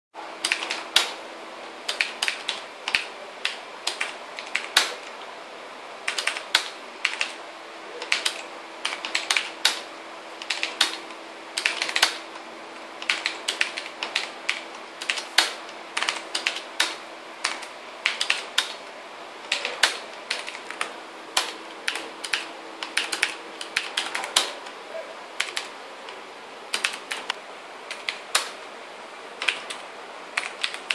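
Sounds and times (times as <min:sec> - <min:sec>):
faint steady hum: 0:00.2 - 0:30.9
keyboard typing clicks: 0:00.4 - 0:01.2, 0:06.1 - 0:07.4, 0:08.0 - 0:12.4, 0:13.0 - 0:18.8, 0:19.5 - 0:24.8, 0:25.4 - 0:25.7, 0:26.7 - 0:28.6, 0:29.4 - 0:29.8, 0:30.4 - 0:30.9.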